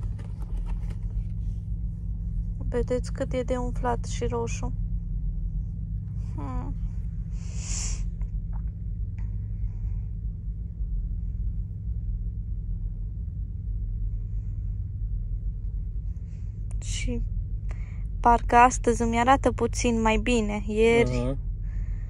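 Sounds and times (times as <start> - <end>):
low hum: 0.0 - 22.0
hissing breath: 7.4 - 8.1
person humming mm: 20.9 - 21.4.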